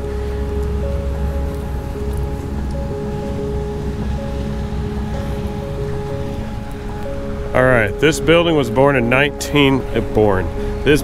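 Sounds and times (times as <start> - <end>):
background music with held notes: 0.0 - 11.0
steady low bass: 0.0 - 11.0.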